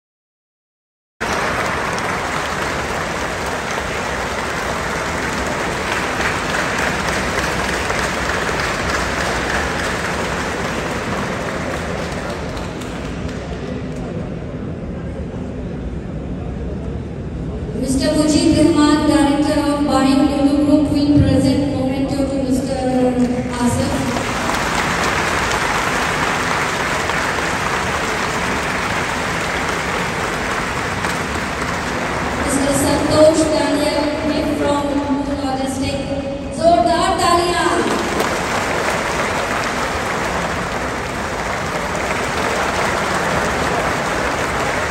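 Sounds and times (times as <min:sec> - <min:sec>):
large crowd applauding: 0:01.2 - 0:14.2, 0:23.2 - 0:35.2, 0:37.6 - 0:44.9.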